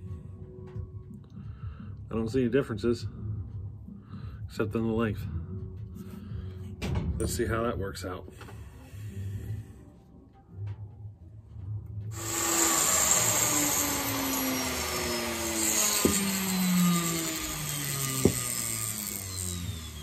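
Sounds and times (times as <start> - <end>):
handheld power tool cutting: 12.2 - 20.0.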